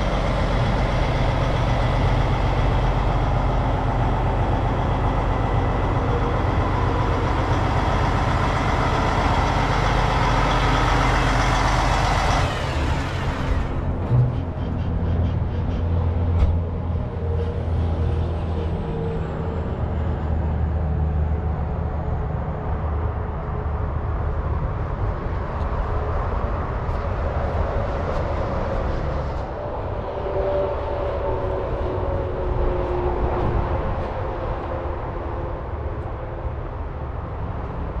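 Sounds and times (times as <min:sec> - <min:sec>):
diesel truck engine idling: 0:00.0 - 0:14.7.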